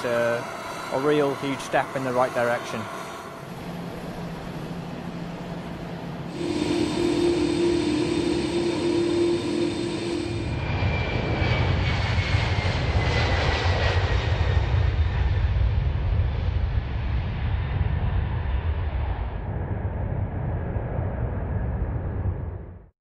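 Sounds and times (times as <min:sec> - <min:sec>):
jet engine whine: 0:00.0 - 0:22.8
jet take-off rumble: 0:00.0 - 0:22.8
high whistle falling in pitch: 0:06.3 - 0:11.1.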